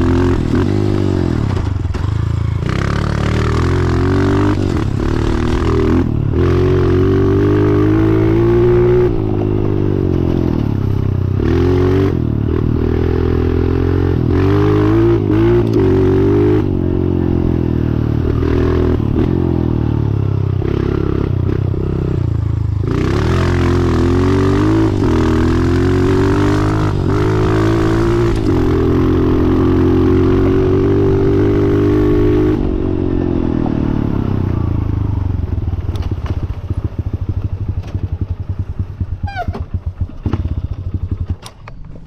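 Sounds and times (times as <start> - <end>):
motorcycle engine revving: 0.0 - 42.0.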